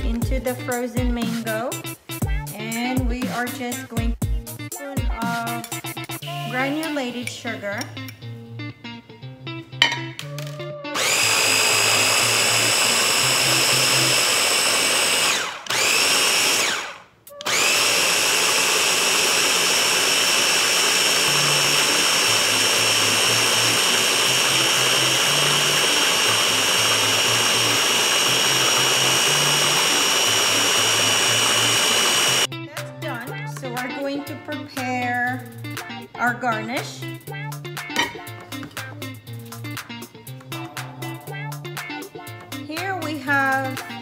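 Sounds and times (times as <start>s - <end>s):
blender motor whining: 10.4s - 32.5s.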